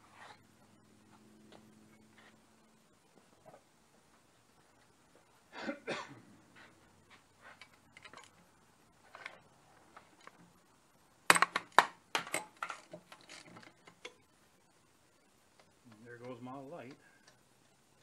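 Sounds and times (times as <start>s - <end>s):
metal tools clinking: 7.4s - 8.4s, 11.3s - 14.2s.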